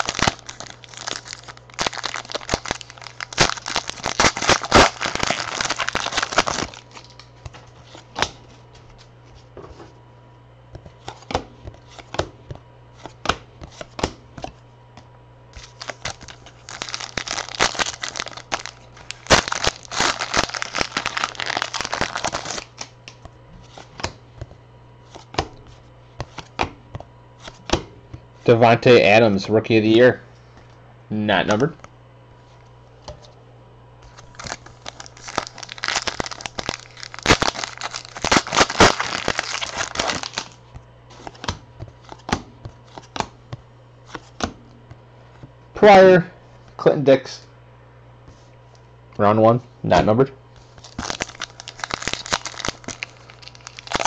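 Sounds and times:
wrappers tearing and crinkling: 0.0 - 7.3, 15.6 - 22.9, 34.1 - 40.6, 50.7 - 54.0.

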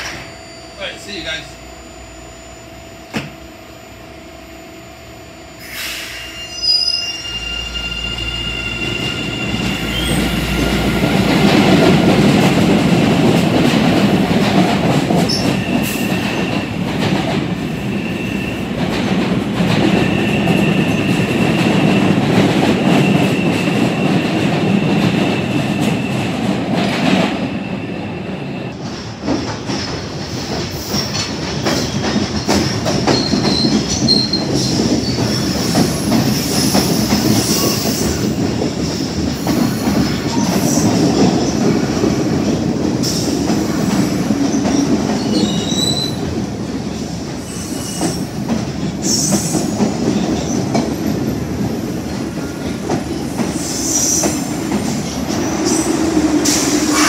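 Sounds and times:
subway train wheels clattering on rails: 0.0 - 1.4, 3.0 - 3.6, 7.1 - 57.0
high wheel squeals: 5.6 - 10.8.

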